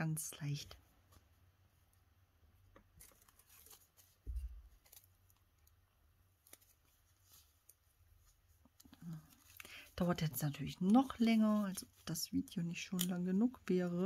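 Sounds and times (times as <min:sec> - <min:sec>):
paper pad rustling: 0:03.0 - 0:05.2.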